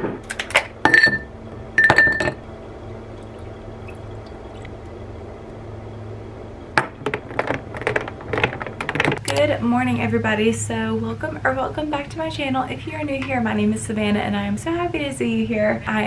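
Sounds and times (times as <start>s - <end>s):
liquid pouring into jar: 3.1s - 4.9s.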